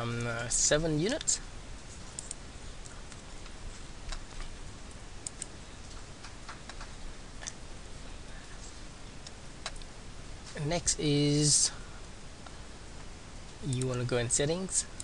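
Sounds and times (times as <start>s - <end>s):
low hum and hiss: 0.0s - 15.0s
computer mouse clicking: 2.1s - 3.2s, 5.2s - 7.6s, 13.7s - 14.0s.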